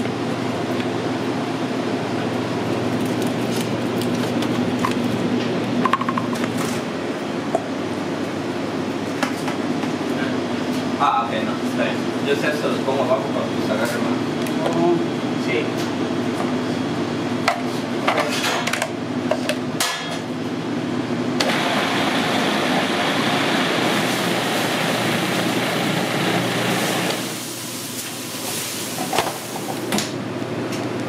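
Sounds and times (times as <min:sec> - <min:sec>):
food processor blending: 0:21.4 - 0:27.5.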